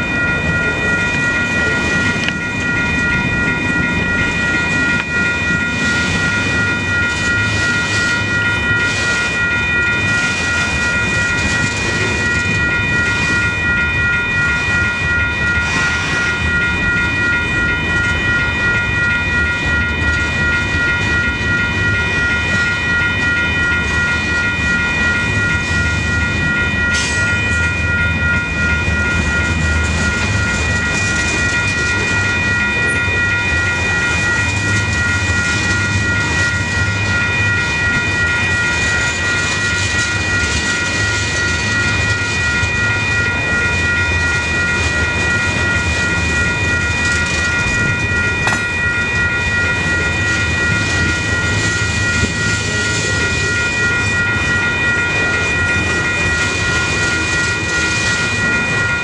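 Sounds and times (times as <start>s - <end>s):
crossing bells ringing: 0.0s - 59.0s
freight train rumbling: 0.0s - 59.0s
sharp metal clank: 48.5s - 48.9s.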